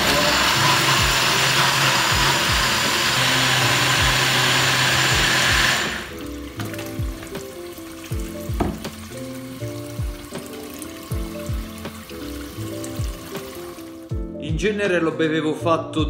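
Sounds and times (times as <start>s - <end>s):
blender running: 0.0s - 6.4s.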